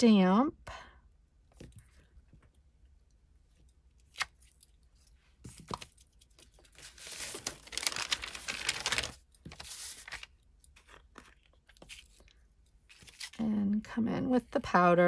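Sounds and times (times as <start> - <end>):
paper rustling and scraping: 5.4 - 12.3, 12.9 - 13.4.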